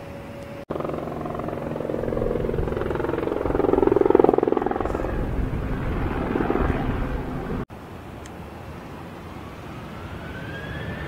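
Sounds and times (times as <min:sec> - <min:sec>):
aircraft rumble passing close: 0:00.1 - 0:07.7.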